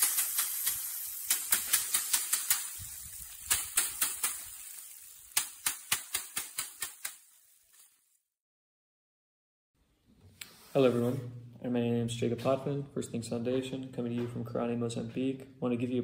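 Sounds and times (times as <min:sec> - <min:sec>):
stick beating dry stalks: 0:00.0 - 0:07.9.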